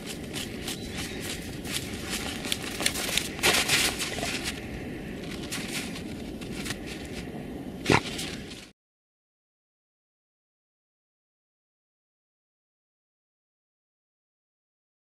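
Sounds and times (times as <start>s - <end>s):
dogs digging in snow: 0.0s - 8.7s.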